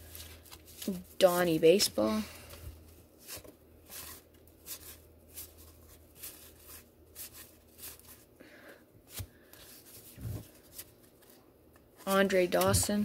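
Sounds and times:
cards being flipped through: 9.1s - 13.0s.

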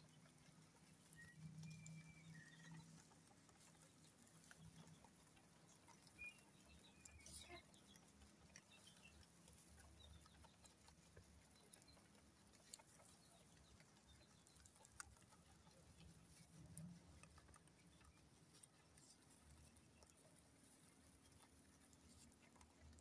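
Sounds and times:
rabbits nibbling grass: 0.0s - 23.0s
faint chirps: 1.0s - 5.1s, 5.9s - 9.3s.

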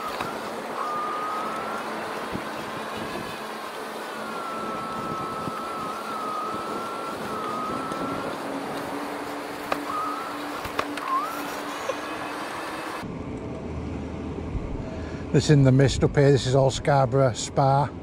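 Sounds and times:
electric bike motor whining: 0.0s - 13.1s.

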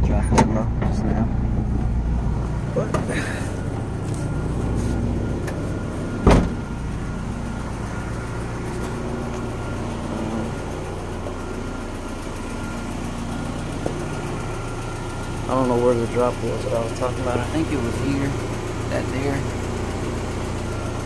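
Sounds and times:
car engine idling: 0.0s - 21.0s
loud thump: 6.2s - 6.7s.

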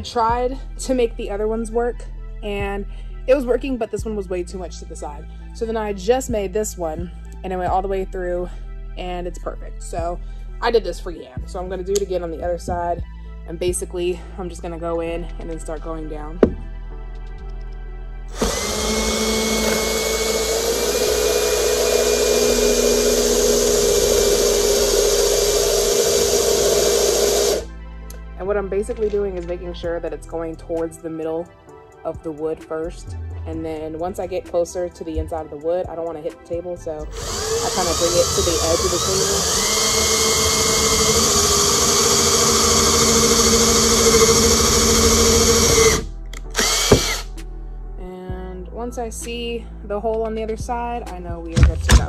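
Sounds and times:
cordless drill boring wood: 18.3s - 27.7s, 37.0s - 47.3s.

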